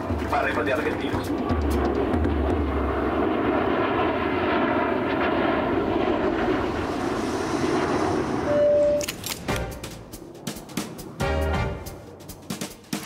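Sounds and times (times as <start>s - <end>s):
jet airliner engines: 0.0s - 13.0s
short steady beep: 8.5s - 9.0s.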